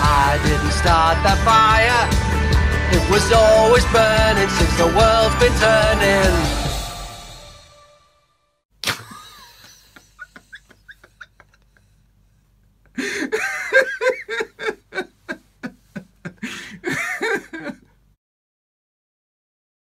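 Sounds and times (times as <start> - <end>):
man laughing: 8.8 - 12.0, 12.8 - 18.0.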